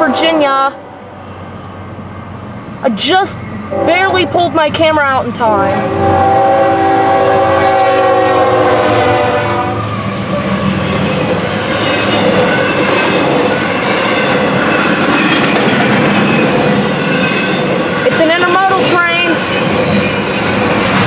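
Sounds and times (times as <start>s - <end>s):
locomotive air horn blast: 0.0s - 1.2s, 5.8s - 9.8s
train wheel clatter: 9.8s - 21.0s.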